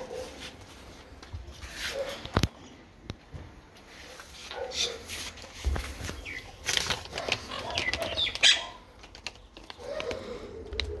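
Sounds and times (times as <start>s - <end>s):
foil bag crinkling: 5.2s - 11.0s.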